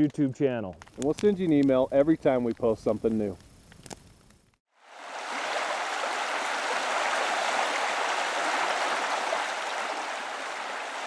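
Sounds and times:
creek rushing over rocks: 4.8 - 11.0.

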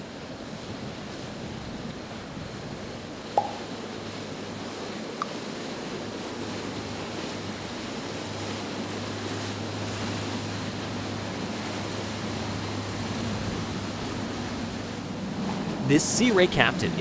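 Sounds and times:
water rushing and splashing: 0.0 - 17.0
low engine hum: 3.4 - 17.0.

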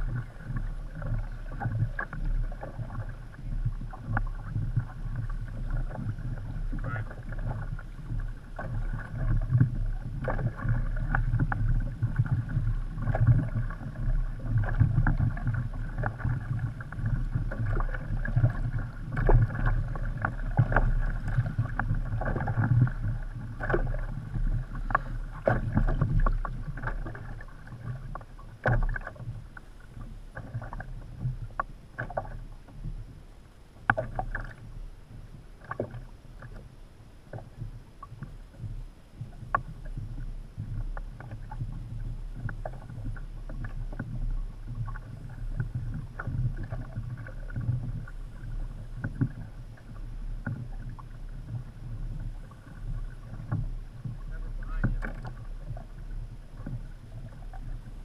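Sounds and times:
water slapping against hull: 0.0 - 58.0
knocks and splashes: 3.8 - 29.4, 50.4 - 57.6.

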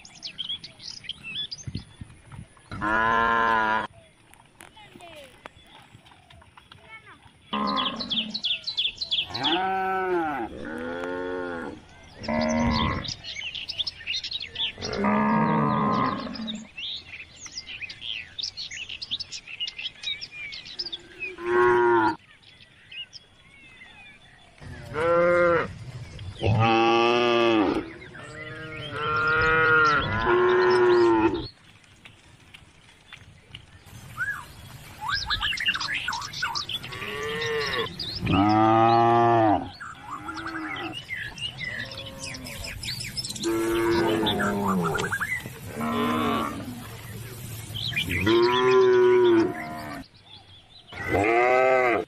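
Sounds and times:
calves mooing: 2.7 - 3.9, 9.3 - 13.2, 14.7 - 16.7, 21.3 - 22.2, 26.4 - 31.5, 36.8 - 46.9, 48.1 - 50.0, 50.9 - 52.0.

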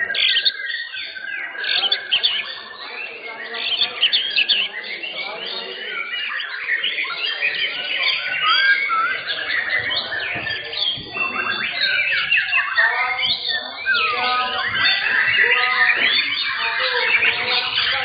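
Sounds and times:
songbirds singing whistles and trills: 0.0 - 18.0.

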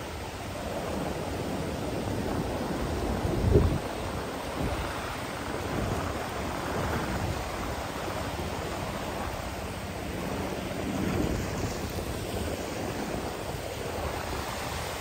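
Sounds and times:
ocean surf on beach: 0.0 - 15.0
wind buffeting microphone: 0.0 - 15.0.

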